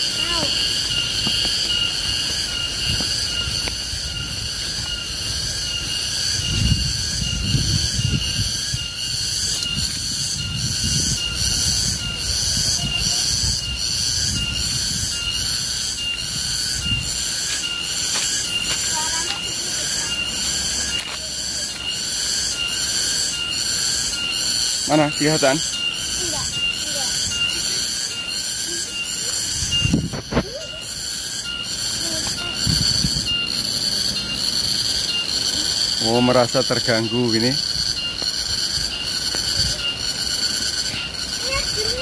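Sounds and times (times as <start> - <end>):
cicada pulsing drone: 0.0 - 42.0.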